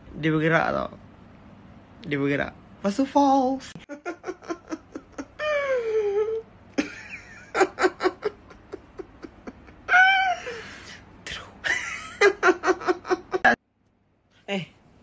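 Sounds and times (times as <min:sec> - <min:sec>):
man laughing: 0:04.0 - 0:05.4, 0:06.8 - 0:09.9, 0:11.7 - 0:13.5.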